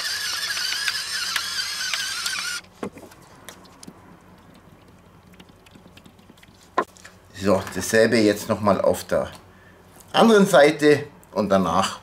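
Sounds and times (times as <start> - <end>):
electric pepper mill whine: 0.0 - 3.2.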